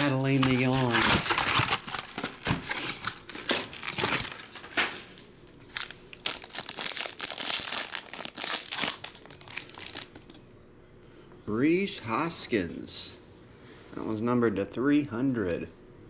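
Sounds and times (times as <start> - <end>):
foil pack crackling: 0.0 - 10.4.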